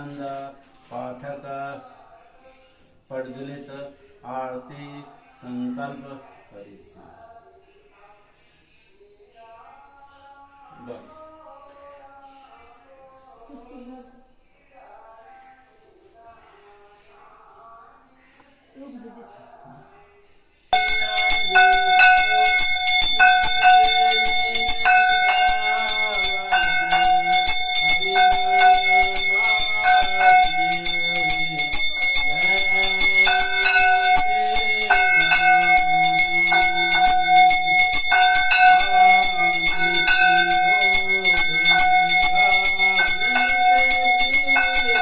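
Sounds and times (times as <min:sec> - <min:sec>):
hand bell ringing fast: 0:20.8 - 0:45.0.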